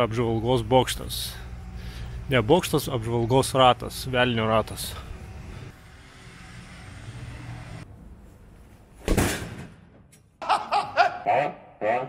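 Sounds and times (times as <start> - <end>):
low outdoor hum: 0.0 - 11.4
man laughing manically: 10.4 - 11.7.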